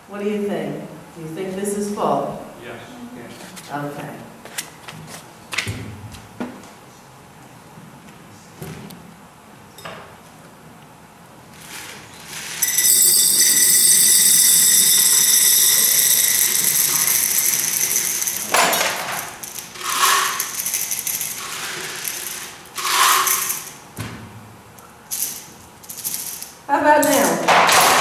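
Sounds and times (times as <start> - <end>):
jar shaken rattling: 12.6 - 23.7
pebbles rattling into a jar: 12.6 - 23.7.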